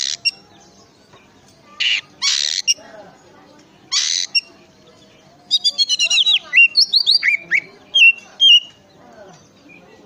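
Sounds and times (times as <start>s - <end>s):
bird singing whistled notes: 5.5s - 8.8s.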